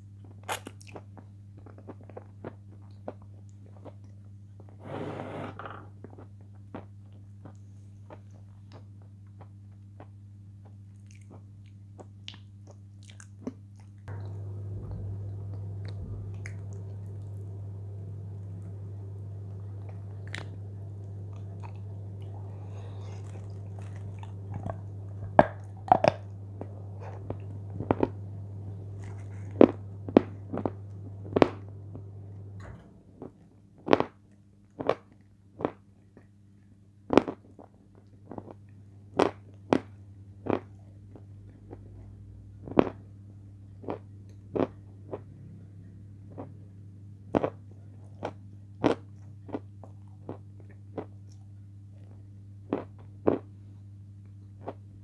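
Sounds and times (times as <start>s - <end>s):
crunchy chips being chewed: 0.2s - 4.2s, 6.2s - 14.0s, 21.3s - 26.3s
steady low hum: 12.7s - 55.0s.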